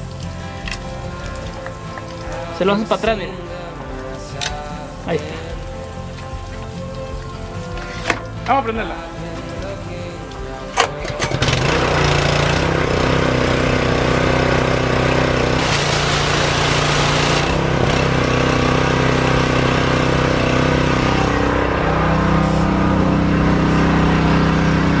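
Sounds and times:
pressure washer engine running: 0.0 - 25.0
hiss: 4.2 - 8.4, 14.1 - 20.9.

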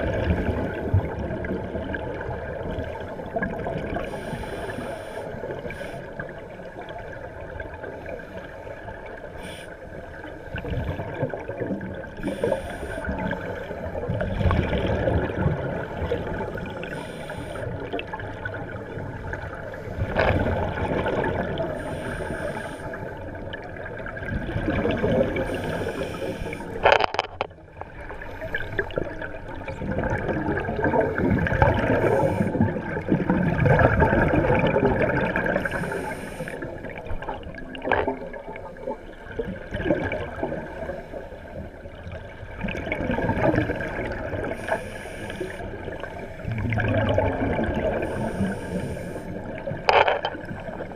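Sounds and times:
regulator bubbling underwater: 0.0 - 9.3, 9.9 - 50.9.

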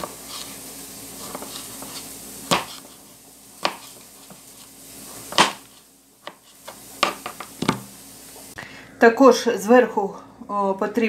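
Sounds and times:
knife chopping on cutting board: 1.3 - 2.9, 3.6 - 4.0, 5.3 - 6.4.

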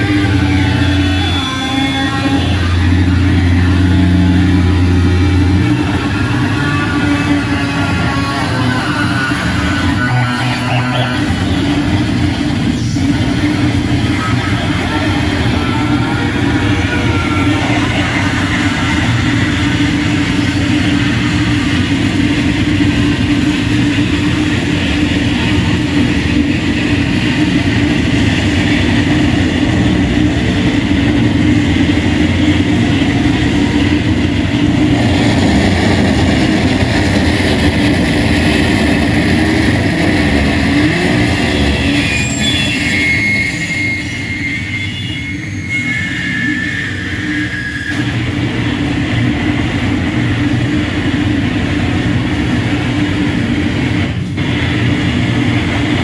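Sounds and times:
harsh noise music: 0.0 - 42.8.

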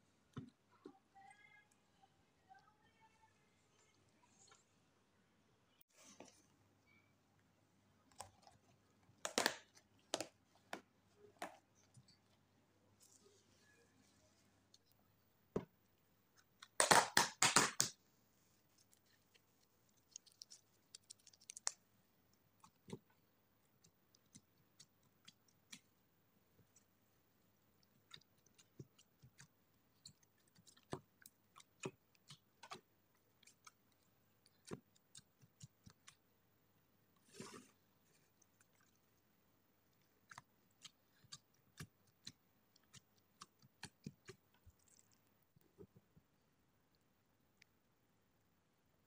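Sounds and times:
slime squishing and clicking: 27.8 - 36.2.

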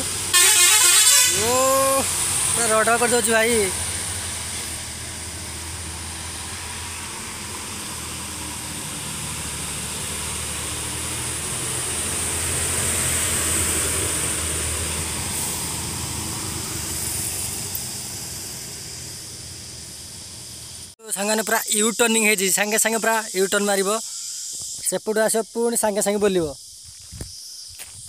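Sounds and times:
bus diesel engine roaring: 0.0 - 21.0.

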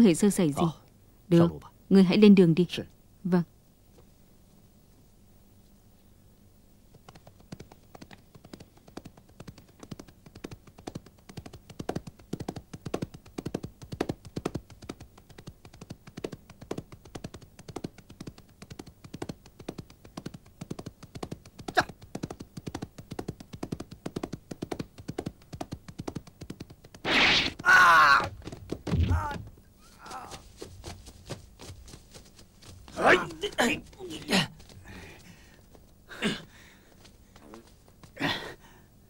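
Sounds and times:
horse hooves galloping: 6.9 - 38.5
sharp crack: 27.0 - 29.5.

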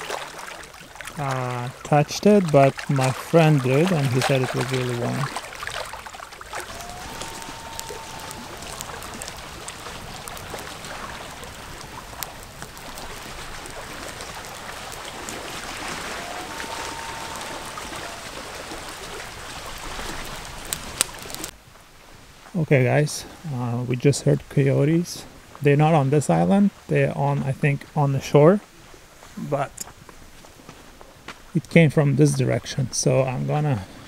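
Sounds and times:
outdoor hiss with crackles: 0.0 - 34.0
distant coyote howls: 6.6 - 12.0, 14.8 - 19.4.

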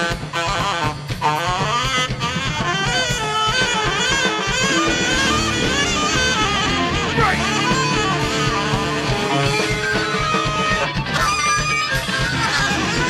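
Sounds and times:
horn section melody: 0.0 - 11.2
live ska band playing: 0.0 - 13.0.

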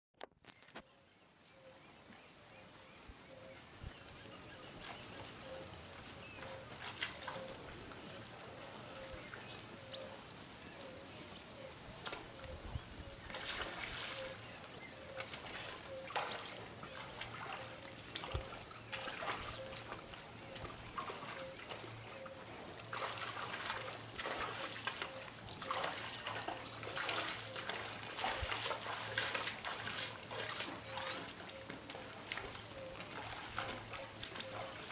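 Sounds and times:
crickets chirping: 0.4 - 34.9.

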